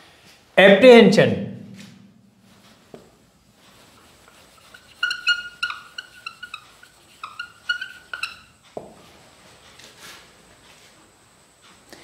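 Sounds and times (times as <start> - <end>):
marker squeaking on whiteboard: 3.7 - 8.7.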